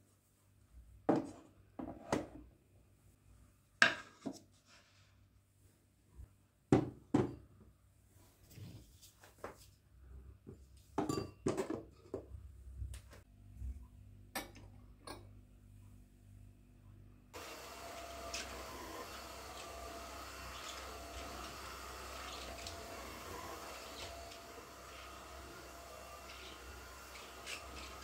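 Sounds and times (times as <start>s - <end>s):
dishes and utensils clinking: 11.0s - 12.2s.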